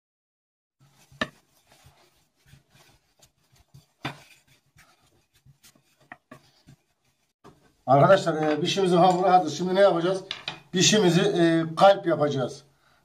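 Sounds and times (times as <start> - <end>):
rolling pin rubbing on dough: 0.8 - 7.7.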